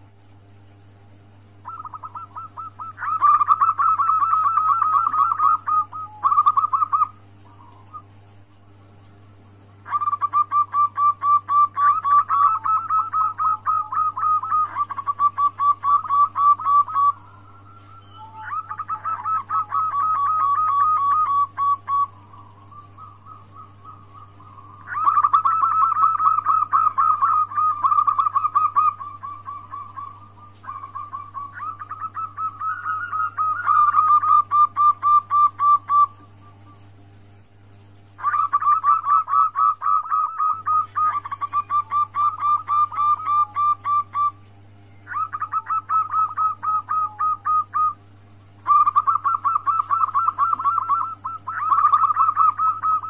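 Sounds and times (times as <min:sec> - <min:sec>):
low steady hum: 0:00.0 - 0:53.0
dove rolling cooing: 0:01.6 - 0:08.1, 0:09.7 - 0:36.9, 0:38.2 - 0:44.4, 0:45.1 - 0:53.0.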